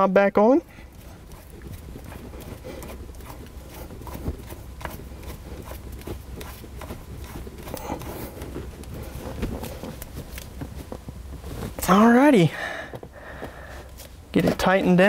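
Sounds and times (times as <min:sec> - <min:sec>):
steady low hum: 0:00.0 - 0:15.0
rubbing: 0:00.8 - 0:12.0.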